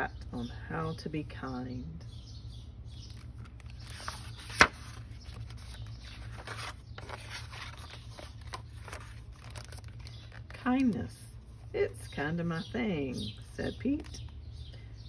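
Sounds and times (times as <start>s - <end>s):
book pages turning: 3.1s - 11.7s
book cover flipping click: 4.4s - 4.9s.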